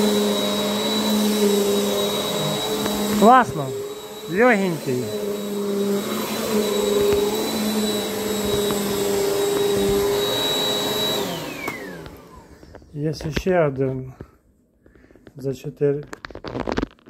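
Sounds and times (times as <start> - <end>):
vacuum motor winding down: 0.0 - 12.6
vacuum cleaner running: 0.0 - 12.8.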